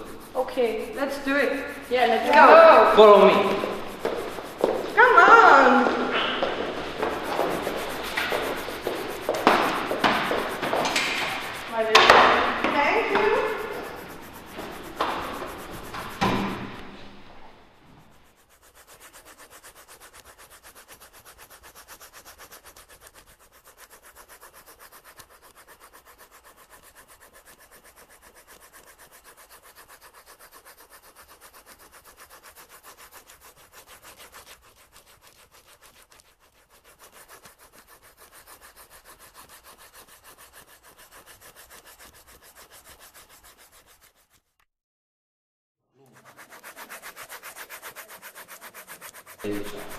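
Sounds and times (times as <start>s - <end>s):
rubbing and scraping strokes: 0.0s - 44.6s, 46.0s - 49.9s
loud knocks: 5.8s - 13.9s, 14.5s - 17.2s.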